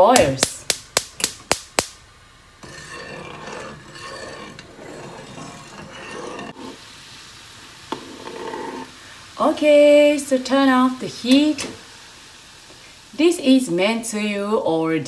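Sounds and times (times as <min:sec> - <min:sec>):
metal spoon stirring soup: 0:02.6 - 0:06.8, 0:07.9 - 0:08.9
faint hiss of heating soup: 0:06.4 - 0:15.0.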